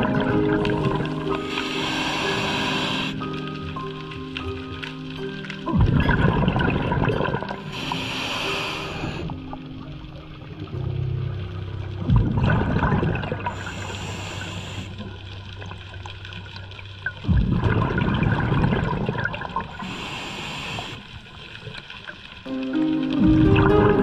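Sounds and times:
hissing regulator inhalation: 0:01.3 - 0:03.4, 0:07.6 - 0:09.4, 0:13.5 - 0:15.0, 0:19.8 - 0:21.2.

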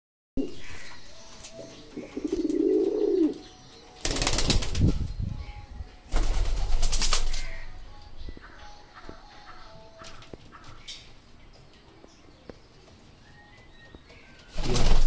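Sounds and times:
pigeon cooing: 0:01.8 - 0:03.5
wings flapping: 0:04.0 - 0:05.1, 0:06.1 - 0:07.6, 0:14.5 - 0:15.0.

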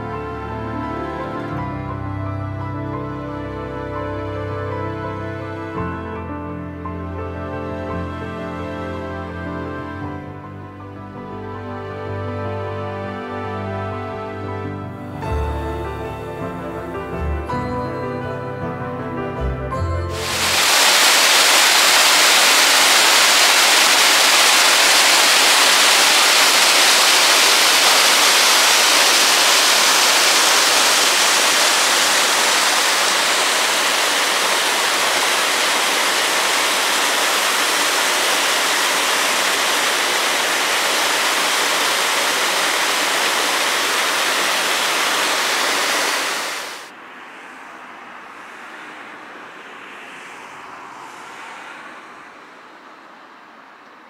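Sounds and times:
water rushing over a weir: 0:20.1 - 0:46.9.

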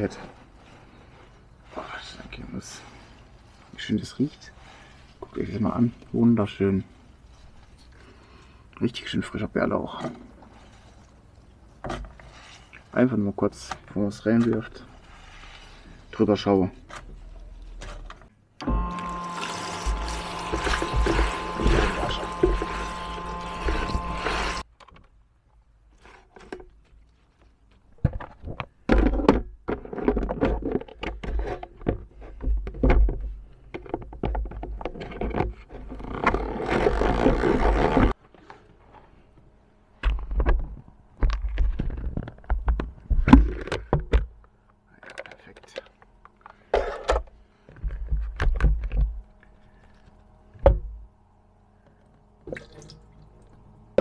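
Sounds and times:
tap water running onto leaves: 0:18.9 - 0:24.6.

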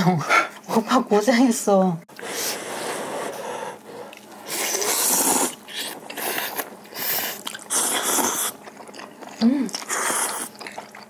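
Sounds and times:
chewing: 0:04.0 - 0:11.0
noodles being slurped: 0:04.0 - 0:11.0.

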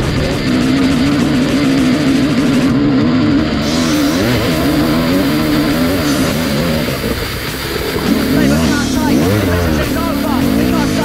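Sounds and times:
dirt bike engine revving: 0:00.0 - 0:11.0.

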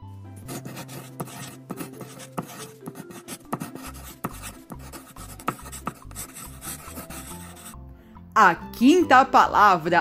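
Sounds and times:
light background music: 0:00.0 - 0:10.0
pencil scratching on paper: 0:00.4 - 0:07.8.

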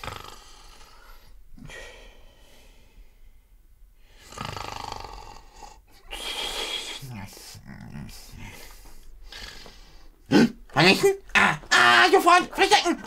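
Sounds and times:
man making snore-like sounds: 0:00.0 - 0:01.0, 0:04.2 - 0:08.5.

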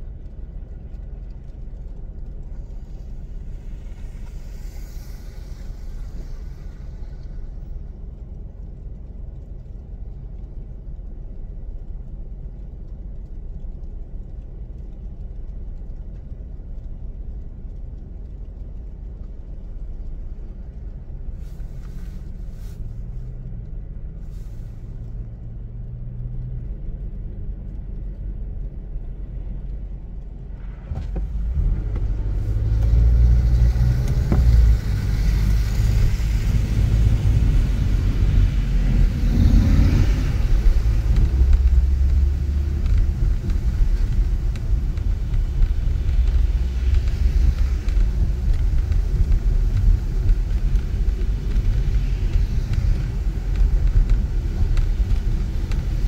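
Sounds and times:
car engine and road rumble: 0:00.0 - 0:56.0
tyre hiss: 0:03.6 - 0:07.4.

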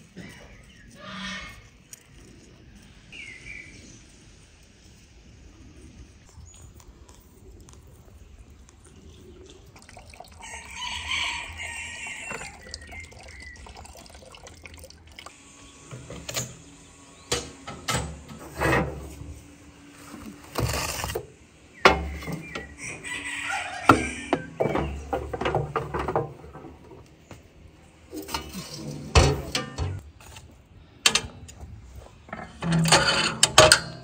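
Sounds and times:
metal tray sliding: 0:17.3 - 0:19.4, 0:28.1 - 0:30.0, 0:32.3 - 0:34.0
metal clanking on metal: 0:23.9 - 0:27.1, 0:28.1 - 0:30.0, 0:31.0 - 0:34.0.

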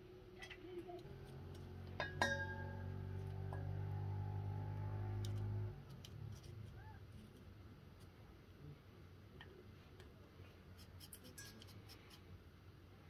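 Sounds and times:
metal bowl clinking: 0:01.3 - 0:04.4.

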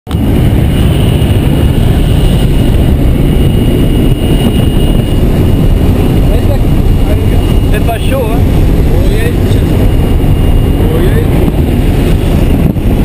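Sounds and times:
propeller aircraft engine rumble: 0:00.1 - 0:13.0.

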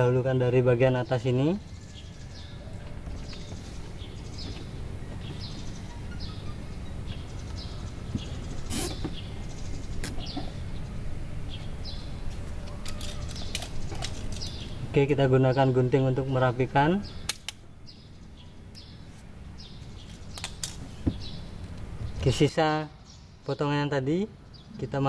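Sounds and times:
low steady rumble: 0:00.0 - 0:24.9
bird chirping: 0:00.0 - 0:25.0
sharp clicks: 0:17.3 - 0:17.6, 0:20.1 - 0:20.8.

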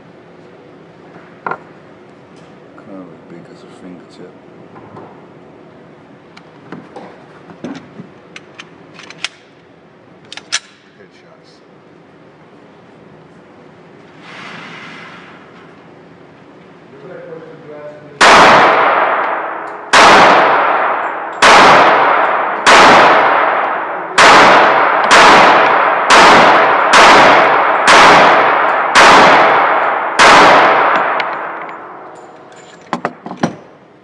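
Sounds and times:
echoing gunshots: 0:18.2 - 0:32.2.

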